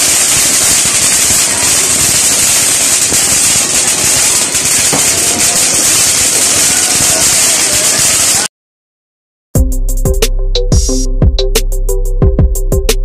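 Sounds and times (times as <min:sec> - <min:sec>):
firework fountain hissing and crackling: 0:00.0 - 0:08.5.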